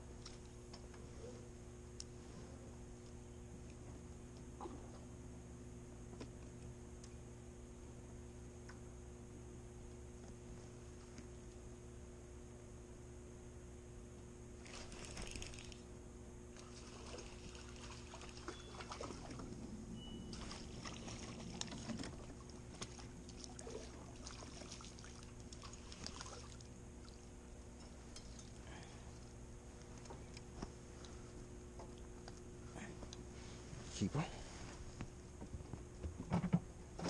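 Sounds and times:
steady low hum: 0:00.0 - 0:37.0
water splashing and trickling: 0:16.6 - 0:19.6, 0:20.3 - 0:27.4.

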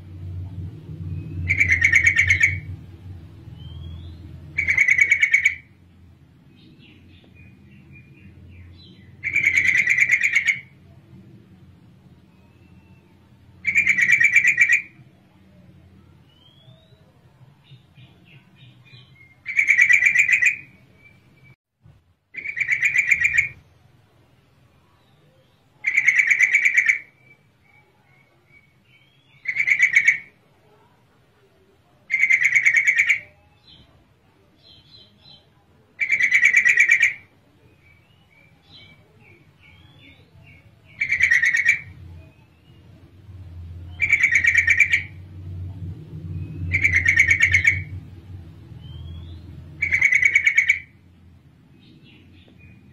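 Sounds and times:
bird chattering calls: 0:01.3 - 0:02.8, 0:03.6 - 0:05.8, 0:08.0 - 0:10.8, 0:13.6 - 0:15.0, 0:18.8 - 0:20.8, 0:22.4 - 0:23.6, 0:25.8 - 0:27.3, 0:28.6 - 0:30.4, 0:32.1 - 0:33.4, 0:36.0 - 0:37.3, 0:37.9 - 0:42.8, 0:43.9 - 0:45.2, 0:46.4 - 0:48.0, 0:48.8 - 0:51.0.

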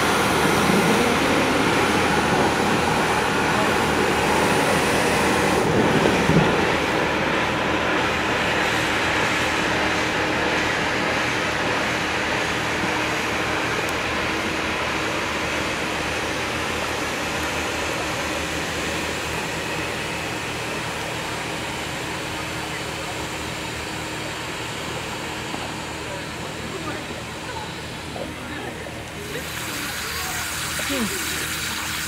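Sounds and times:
gas hissing into life raft: 0:29.1 - 0:32.0.

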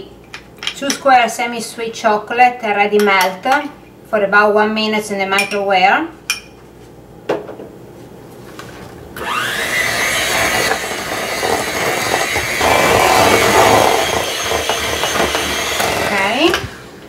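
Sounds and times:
electric hand mixer running: 0:09.2 - 0:17.0.

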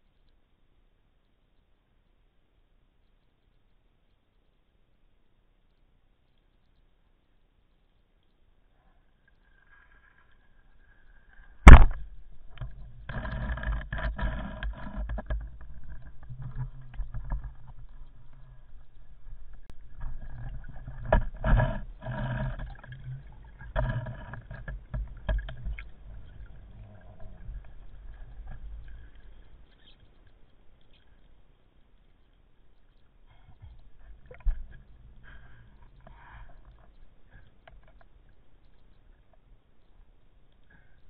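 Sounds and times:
water rushing against camera housing: 0:11.3 - 0:30.9.

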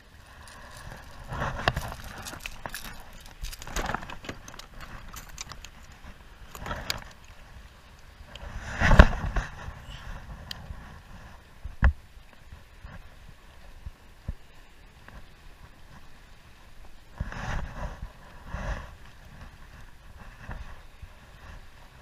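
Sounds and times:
fishing gear knocks and rustles: 0:00.3 - 0:07.4.

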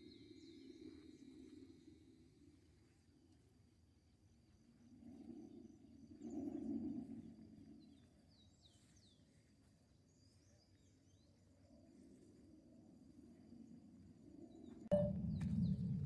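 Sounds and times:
soft bird chirps: 0:00.0 - 0:02.1, 0:14.5 - 0:16.0
faint high insect tone: 0:00.0 - 0:16.0
low rumble: 0:14.9 - 0:16.0.

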